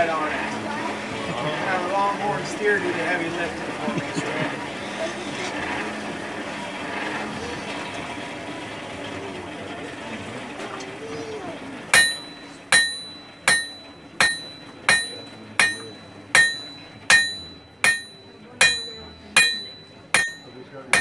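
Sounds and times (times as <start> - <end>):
hammer striking iron on anvil: 11.9 - 21.0.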